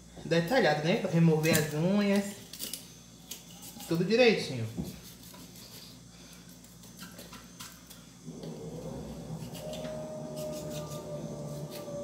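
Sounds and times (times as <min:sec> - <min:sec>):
low droning hum: 0:07.3 - 0:12.0.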